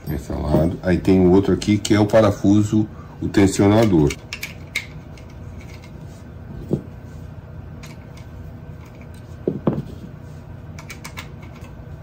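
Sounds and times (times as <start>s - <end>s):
dull knocks of handled parts: 7.8s - 10.1s.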